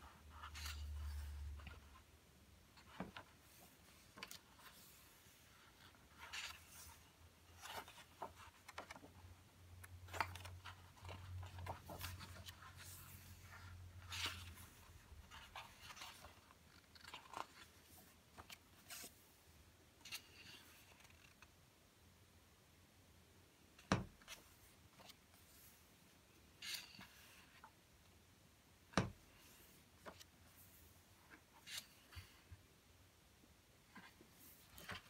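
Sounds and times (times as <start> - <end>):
paper pages rustling: 2.8 - 9.2, 9.8 - 19.2, 33.9 - 35.0.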